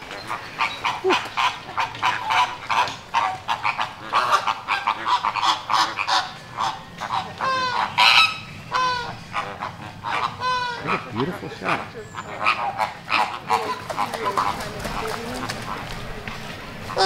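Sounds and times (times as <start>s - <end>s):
flamingos honking and chattering: 0.0s - 17.0s.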